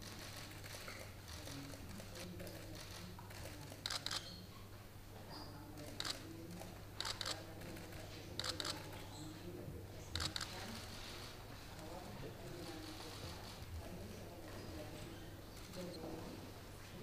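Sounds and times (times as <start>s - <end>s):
faint low room hum: 0.0s - 17.0s.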